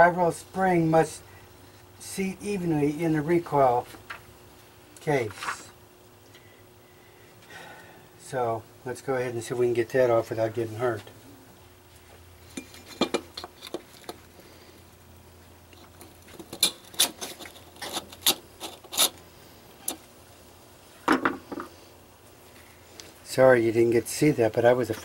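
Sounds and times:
screwdriver scraping metal: 16.4s - 19.2s.

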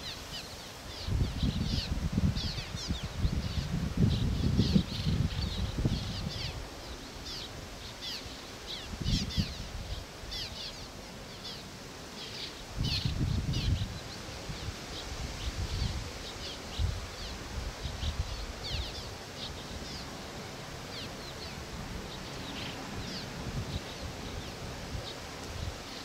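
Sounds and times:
swallows chirping: 0.0s - 20.2s.

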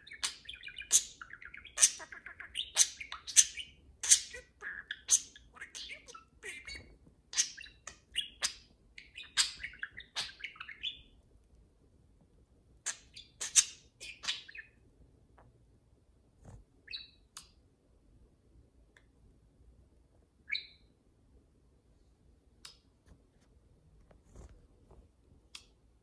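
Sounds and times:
budgerigars chirping: 0.0s - 11.1s, 12.9s - 14.8s.

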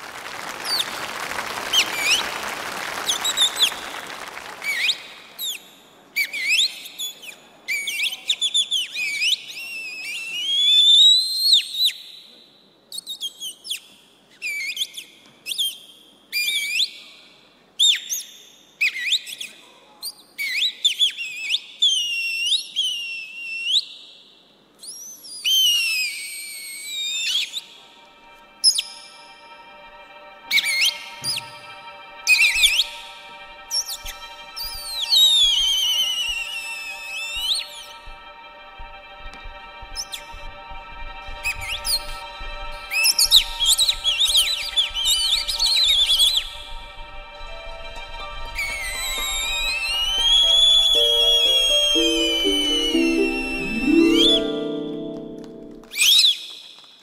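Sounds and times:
applause: 0.0s - 5.6s, 48.5s - 50.6s, 53.7s - 57.0s
whistled bird-like calls: 48.9s - 54.8s.

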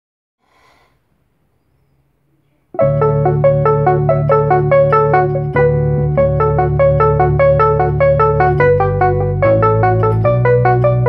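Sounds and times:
keyboard melody run: 2.8s - 11.0s.

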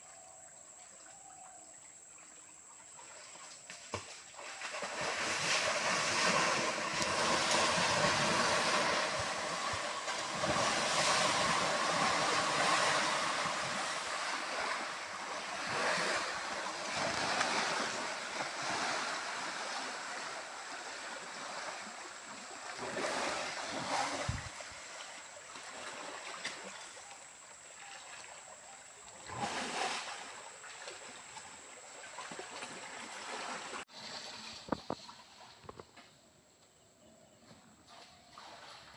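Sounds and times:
water splashing and churning: 0.0s - 35.8s, 37.8s - 38.9s.

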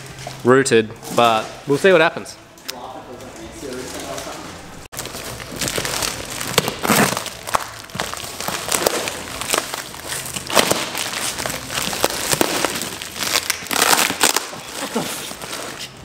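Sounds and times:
cardboard parcel crinkling: 3.6s - 16.0s
packing tape ripping: 5.0s - 16.0s.

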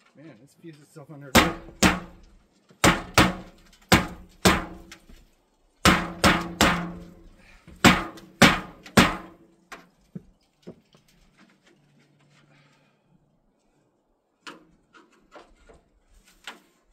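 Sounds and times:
hammer hitting metal pipe: 1.4s - 2.2s, 2.8s - 4.9s, 5.8s - 9.4s.

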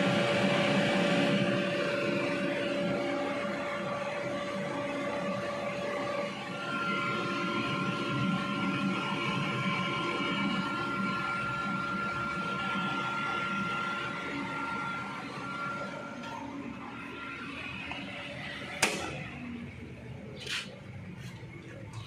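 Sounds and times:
electrical cabinet hum and whine: 0.0s - 22.0s
power switch clack: 18.8s - 19.2s.

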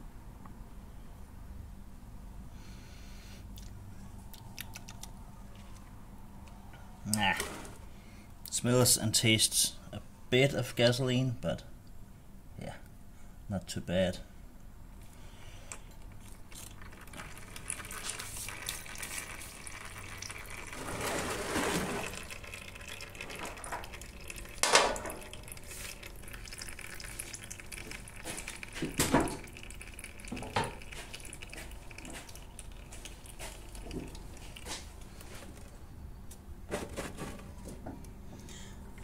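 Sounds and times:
oil trickling into plastic tub: 15.8s - 35.7s.

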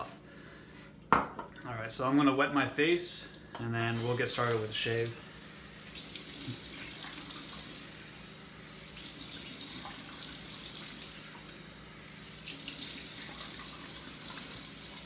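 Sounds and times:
sink tap running: 3.9s - 15.0s.

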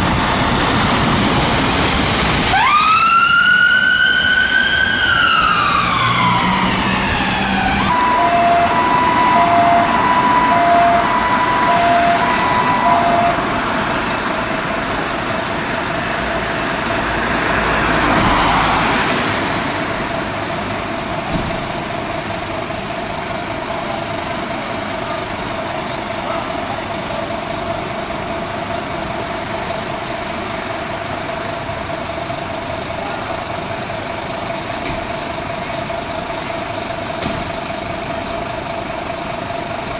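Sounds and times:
fire engine running: 0.0s - 39.9s
ambulance siren: 2.5s - 16.9s.

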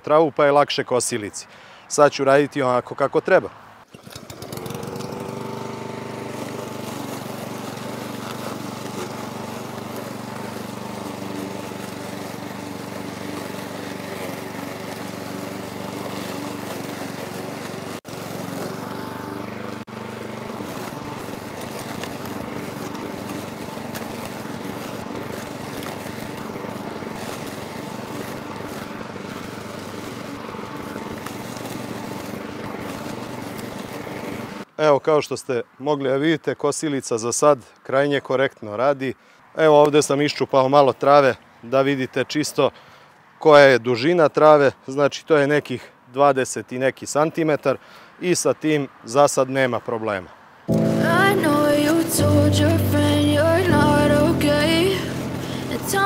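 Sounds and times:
petrol lawn mower engine: 3.6s - 34.8s, 39.2s - 45.8s, 50.4s - 56.0s.

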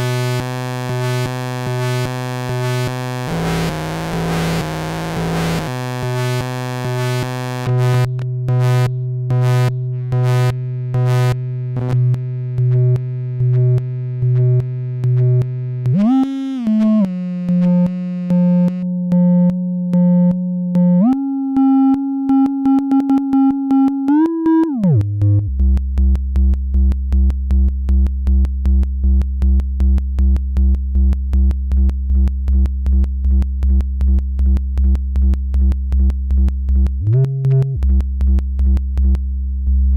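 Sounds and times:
synthesizer pulsing bass: 0.0s - 39.9s.

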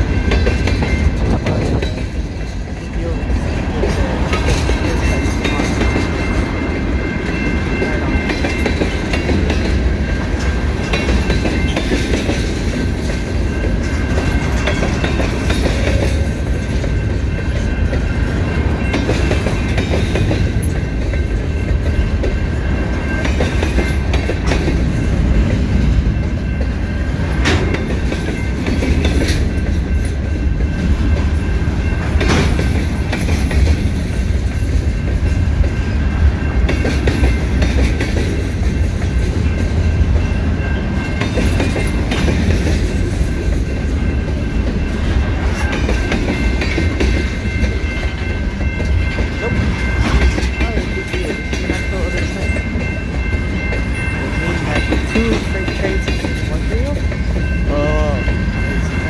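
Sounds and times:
freight train rumbling past: 0.0s - 59.0s
wheel clatter over rail joints: 0.0s - 59.0s.

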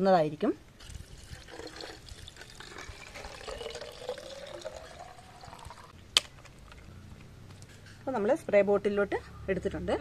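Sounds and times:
liquid pouring into bottle: 0.8s - 5.9s.

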